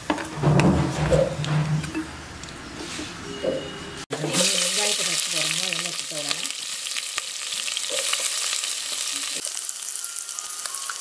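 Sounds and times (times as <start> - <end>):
onions sizzling in oil: 4.1 - 11.0.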